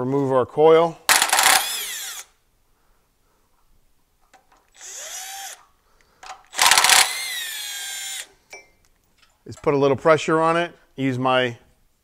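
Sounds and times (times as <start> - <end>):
cordless drill spinning: 1.1 - 2.4, 4.7 - 5.7, 6.5 - 8.4.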